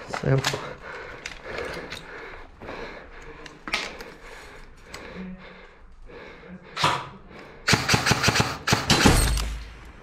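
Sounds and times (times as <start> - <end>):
airsoft gun rapid shots: 7.7 - 9.3.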